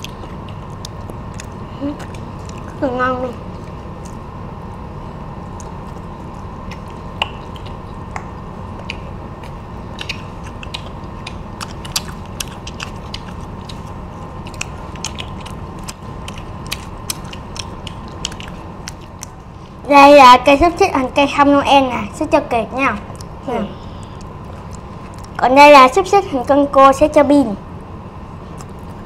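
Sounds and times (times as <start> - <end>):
steady low hum: 0.0 - 29.0
crunching fried shrimp: 5.4 - 19.5.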